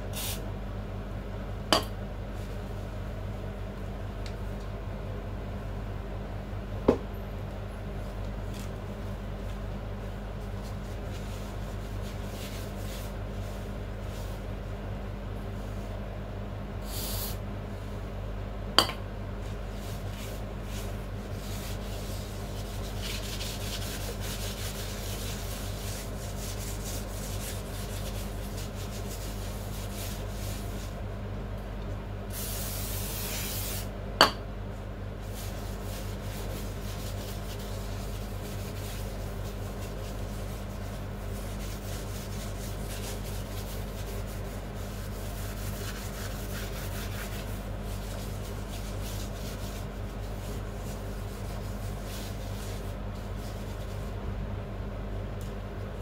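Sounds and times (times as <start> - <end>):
steady low hum: 0.0 - 56.0
aerosol spray hiss: 0.1 - 0.4, 16.8 - 17.4, 32.3 - 33.9.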